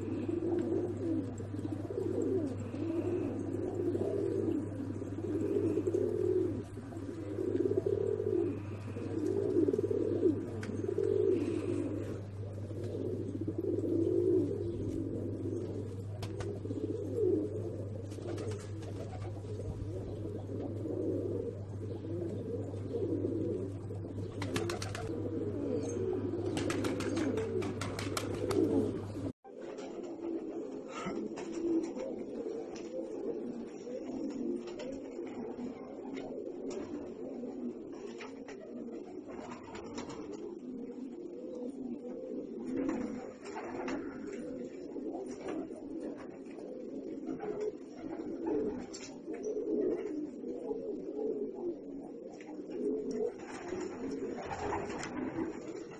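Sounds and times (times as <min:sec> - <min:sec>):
steady low hum: 0:00.0 - 0:29.4
pigeons cooing: 0:00.0 - 0:55.9.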